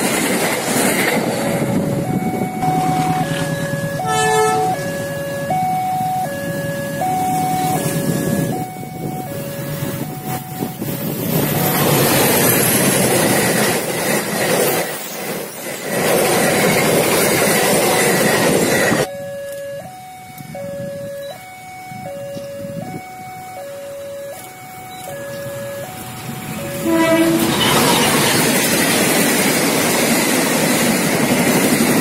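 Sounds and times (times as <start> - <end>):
train wagons rumbling past: 0.0 - 32.0
two-tone level-crossing alarm: 1.6 - 12.6, 16.5 - 29.2.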